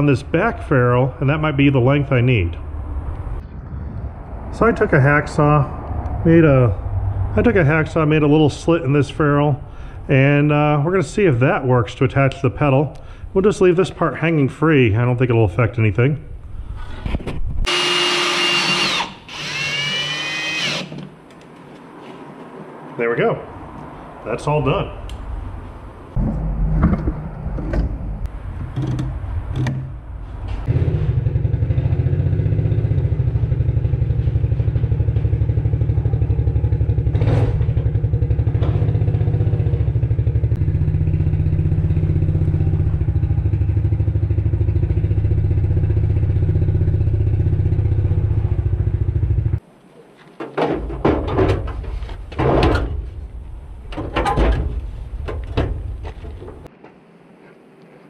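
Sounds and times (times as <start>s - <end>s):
knocks and clatter: 26.2s - 29.9s, 37.1s - 39.2s, 50.4s - 53.2s, 53.9s - 57.0s.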